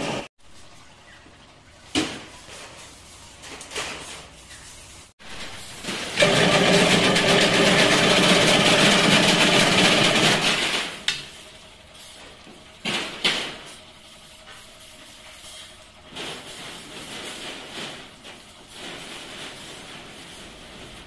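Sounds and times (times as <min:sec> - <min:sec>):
wire weaving machine running: 0:05.3 - 0:11.1.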